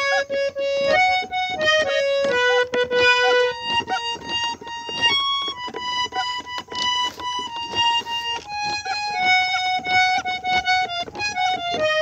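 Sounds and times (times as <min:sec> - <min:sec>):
harmonium melody: 0:00.0 - 0:12.0
quick sharp taps: 0:00.0 - 0:12.0.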